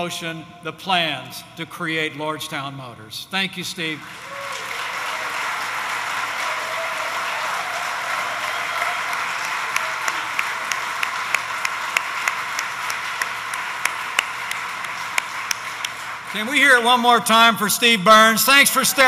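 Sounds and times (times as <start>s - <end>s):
audience applauding: 3.9s - 19.0s
close hand claps: 4.0s - 16.8s.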